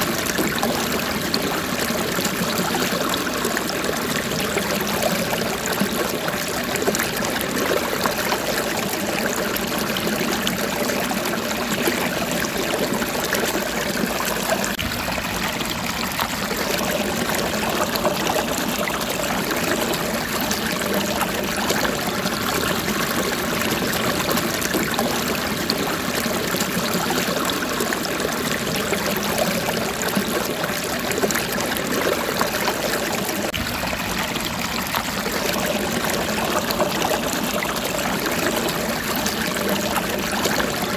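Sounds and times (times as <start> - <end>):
stream trickling: 0.0 - 40.9.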